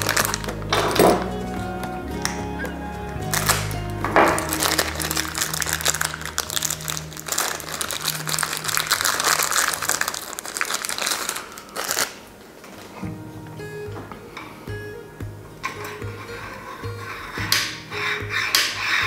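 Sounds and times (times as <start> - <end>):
plastic bag crinkling: 0.0 - 1.4, 3.3 - 13.0.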